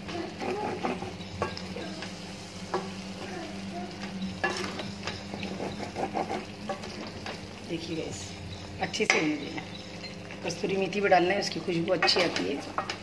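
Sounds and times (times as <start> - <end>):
sauce sizzling: 0.0 - 13.0
spoon scraping a metal pot: 0.3 - 1.6, 4.4 - 6.8.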